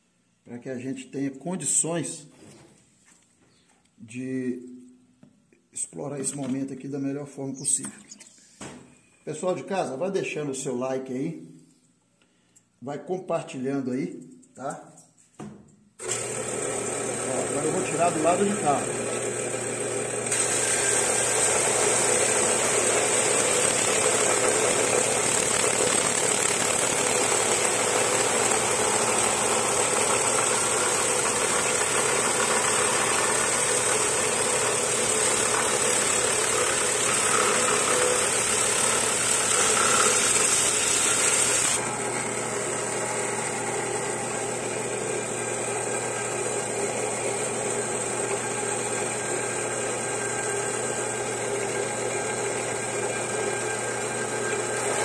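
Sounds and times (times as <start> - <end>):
saw motor running: 16.0 - 55.0.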